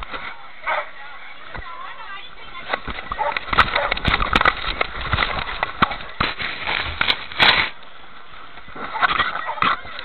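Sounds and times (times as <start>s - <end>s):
camera knocking and scraping: 2.6s - 7.8s.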